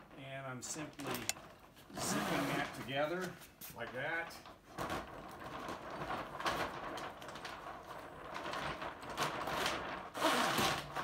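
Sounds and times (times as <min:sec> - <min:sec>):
zipper being drawn closed: 0:10.2 - 0:10.8.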